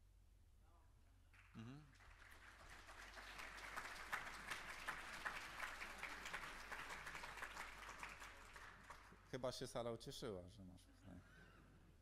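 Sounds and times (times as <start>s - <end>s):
audience applauding: 1.9s - 9.2s.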